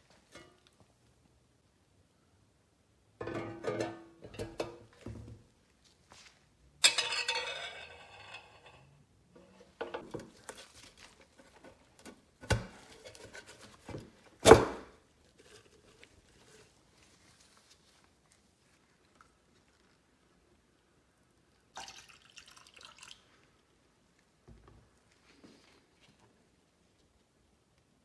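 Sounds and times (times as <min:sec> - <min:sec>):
metal parts clunking: 0:06.8 - 0:08.8.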